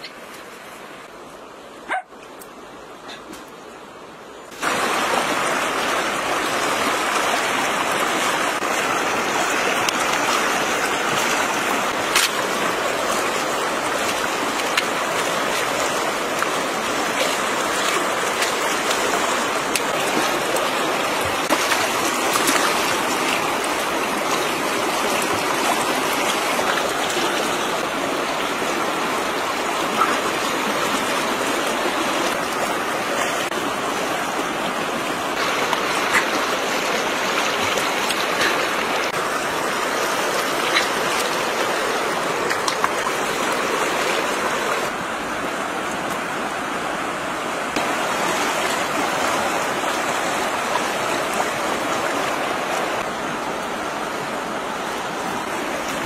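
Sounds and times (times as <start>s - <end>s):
running water rushing: 0.0s - 56.0s.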